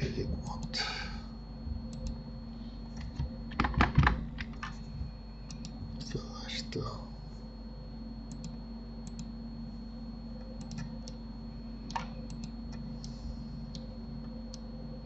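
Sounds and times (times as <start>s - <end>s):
low electrical hum: 0.0s - 15.0s
computer mouse clicks: 1.9s - 2.2s, 5.4s - 5.8s, 8.3s - 9.3s, 10.5s - 11.2s, 11.9s - 14.7s.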